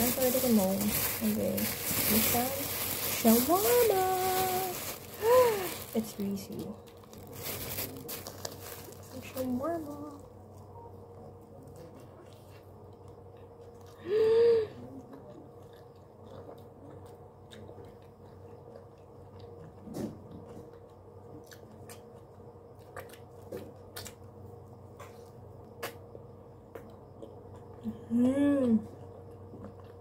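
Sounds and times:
steady hum: 0:00.0 - 0:30.0
person chewing food: 0:11.7 - 0:14.0, 0:14.8 - 0:28.3, 0:28.9 - 0:30.0.

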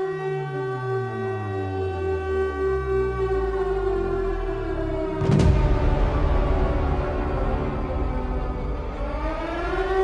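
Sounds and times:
deep low drone: 0:05.0 - 0:10.0.

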